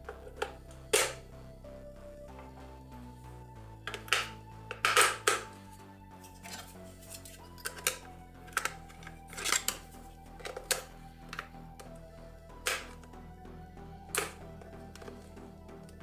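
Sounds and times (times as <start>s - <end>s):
soft background music: 0.0s - 16.0s
plastic battery cover clicking: 3.9s - 5.5s, 7.4s - 12.0s, 14.1s - 15.2s.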